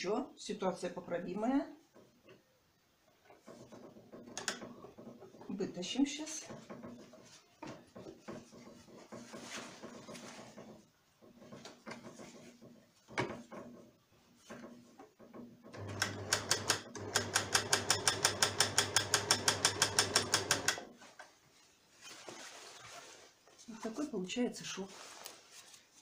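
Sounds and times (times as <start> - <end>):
fabric rustling: 6.2 - 14.9, 20.9 - 26.0
sewing machine stitching: 15.7 - 20.9.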